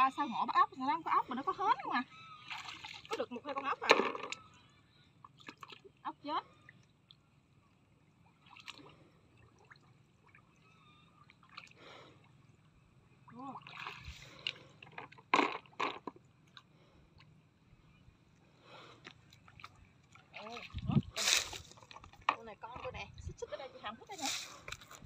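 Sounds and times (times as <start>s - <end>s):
muddy water sloshing: 0.0s - 4.6s, 5.2s - 7.2s, 8.2s - 17.2s, 18.5s - 25.0s
sharp splashes: 2.4s - 3.2s, 19.5s - 22.2s.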